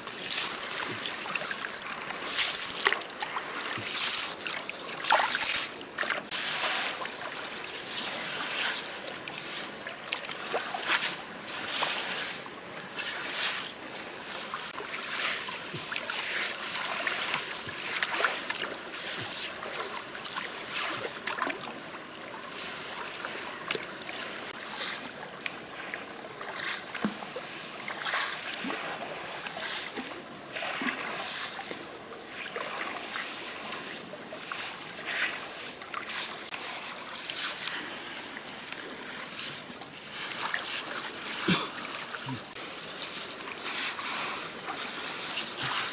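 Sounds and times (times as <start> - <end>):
water splashing: 0.0 - 21.8, 22.4 - 37.7.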